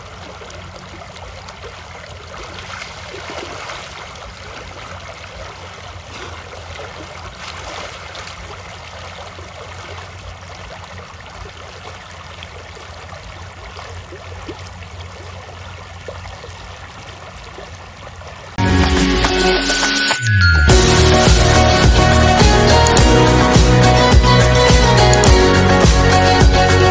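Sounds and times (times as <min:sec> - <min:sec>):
water rushing over a bank: 0:00.0 - 0:19.3.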